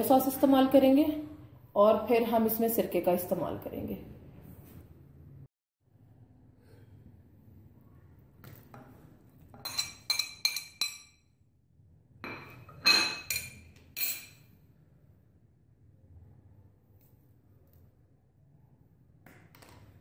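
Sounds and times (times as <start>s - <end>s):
metal spoon clinking on glass dish: 9.6s - 11.2s, 12.2s - 14.5s.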